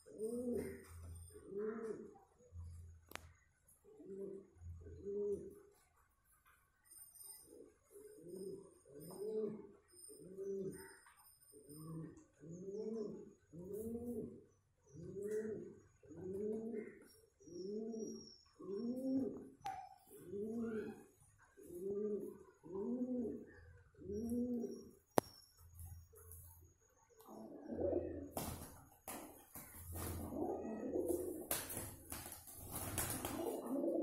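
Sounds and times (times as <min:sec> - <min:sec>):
pigeon cooing: 0:00.0 - 0:02.2, 0:03.9 - 0:05.7, 0:07.9 - 0:11.0, 0:11.6 - 0:25.0, 0:27.3 - 0:28.4, 0:29.8 - 0:32.0, 0:32.7 - 0:34.0.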